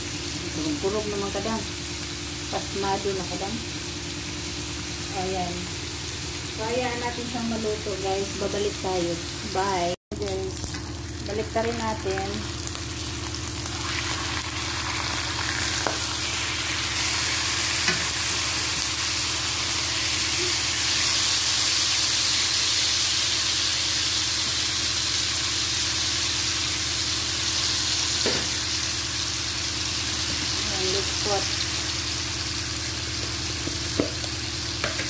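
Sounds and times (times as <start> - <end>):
pork sizzling in a pan: 0.0 - 35.0.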